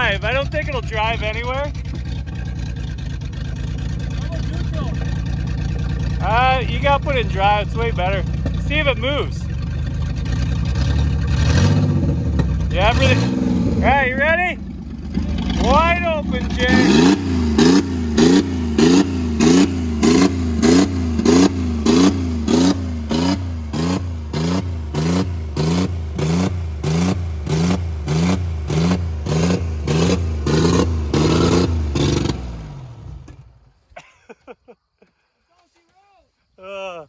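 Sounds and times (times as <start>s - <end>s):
car engine revving: 0.0s - 33.7s.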